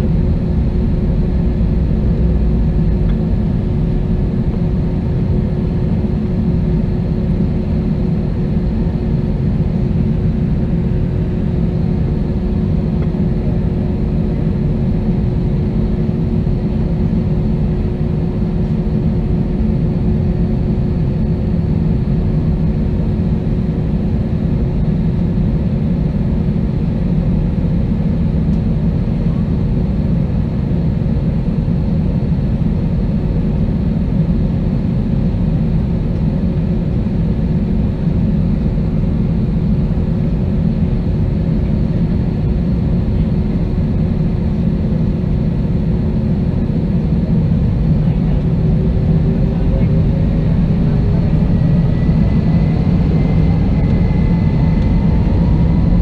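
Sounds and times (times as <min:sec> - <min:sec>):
jet engines idling: 0:00.0 - 0:08.0, 0:32.8 - 0:56.0.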